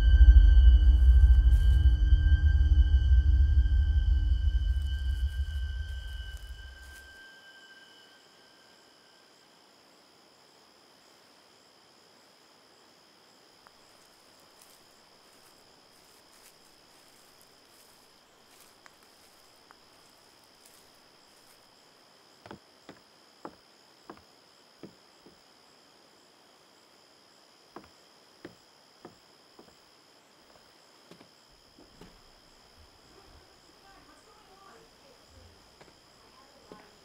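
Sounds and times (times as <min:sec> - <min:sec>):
insects chirring: 0:00.0 - 0:37.0
heeled footsteps on wooden boards: 0:22.4 - 0:25.4, 0:27.8 - 0:29.8.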